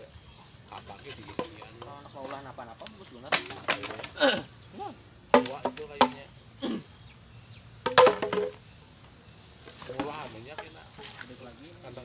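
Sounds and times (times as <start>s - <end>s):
insect drone: 0.0s - 12.0s
tool knocking on bamboo: 5.3s - 6.3s, 7.8s - 8.6s, 9.7s - 11.3s.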